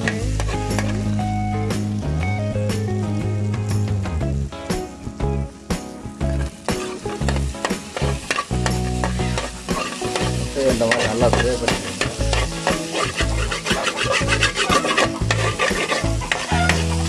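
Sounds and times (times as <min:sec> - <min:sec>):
eggs sizzling in oil: 0:00.0 - 0:02.2, 0:04.4 - 0:17.0
metal spoon scraping a pan: 0:06.7 - 0:17.0.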